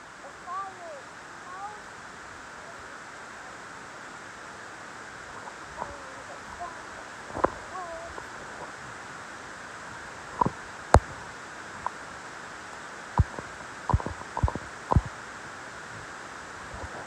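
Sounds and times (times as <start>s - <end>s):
wood fire crackling and popping: 13.1s - 15.2s.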